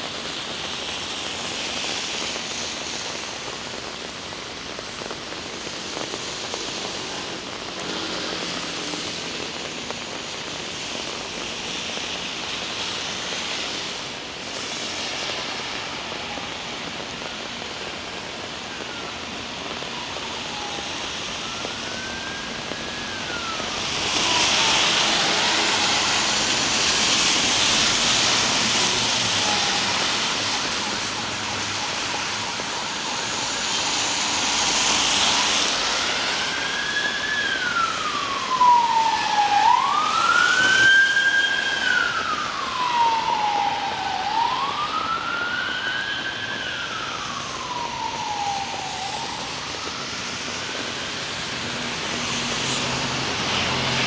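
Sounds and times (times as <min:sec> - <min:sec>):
heavy rain hiss: 0:00.0 - 0:54.0
siren wailing: 0:15.2 - 0:54.0.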